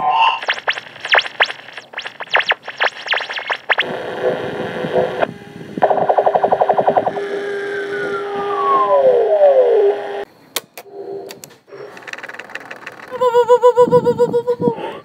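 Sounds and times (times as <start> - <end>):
steady tones: 0.0 - 10.2
warped cassette pitch sweeps: 0.0 - 10.2
tape hiss: 0.0 - 10.3
rapid stuttering pulses: 0.4 - 7.4.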